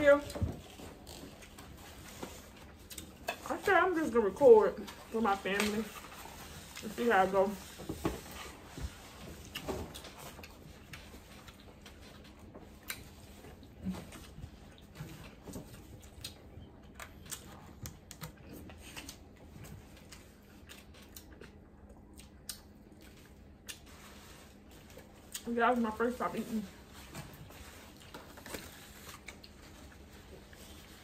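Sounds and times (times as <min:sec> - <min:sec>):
chewing: 0:09.0 - 0:25.6, 0:26.8 - 0:31.0.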